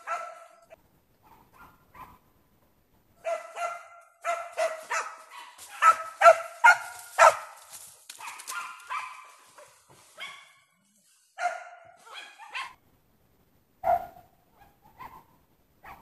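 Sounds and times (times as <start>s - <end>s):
dogs barking and yelping: 0.0s - 2.2s, 3.2s - 7.6s, 8.2s - 10.6s, 11.4s - 12.8s, 13.8s - 16.0s.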